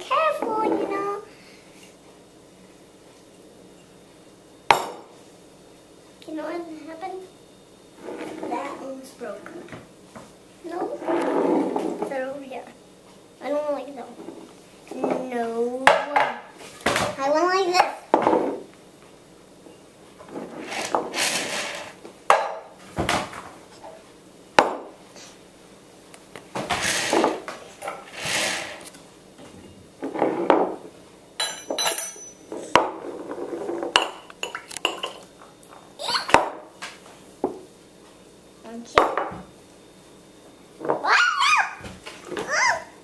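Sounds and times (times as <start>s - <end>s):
glass clinking on wooden table: 31.4s - 32.9s.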